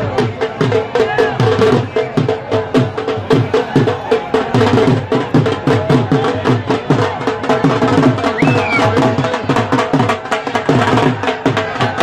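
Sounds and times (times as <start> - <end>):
fast steady drumming: 0.0 - 12.0.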